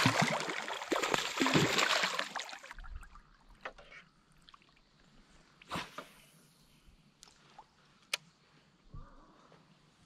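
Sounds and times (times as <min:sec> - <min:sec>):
fish thrashing water splashing: 0:00.0 - 0:02.7.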